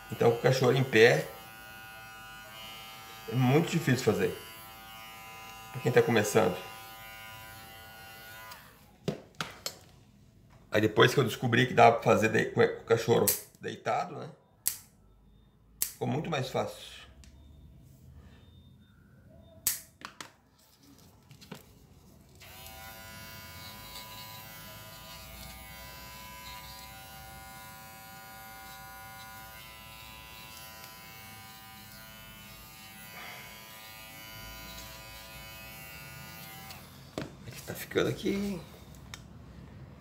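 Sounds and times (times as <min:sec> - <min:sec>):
pet clipper buzzing hum: 0:00.0 - 0:08.8, 0:22.4 - 0:37.2
nail clipper snips: 0:13.3 - 0:13.5, 0:14.6 - 0:14.9, 0:15.8 - 0:16.0, 0:19.7 - 0:19.9.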